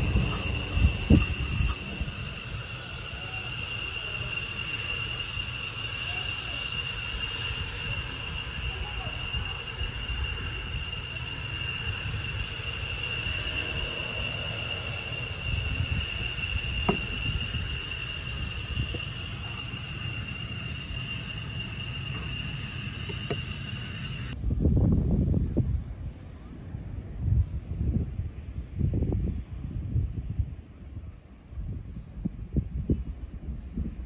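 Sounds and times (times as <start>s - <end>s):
high-pitched whine: 0.0s - 24.4s
low rumble: 0.0s - 26.3s.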